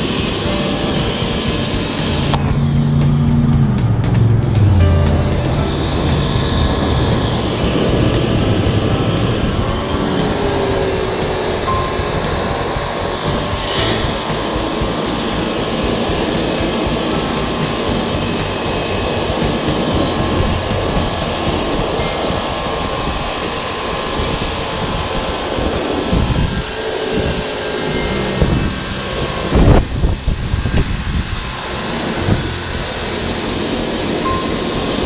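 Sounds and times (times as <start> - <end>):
pressure washer spraying concrete: 0.0 - 2.4, 6.3 - 35.0.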